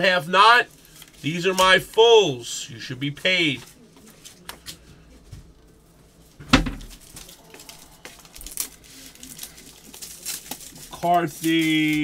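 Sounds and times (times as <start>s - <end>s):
foil wrappers crinkling: 0.6s - 2.0s, 6.2s - 12.0s
thump: 6.4s - 6.9s.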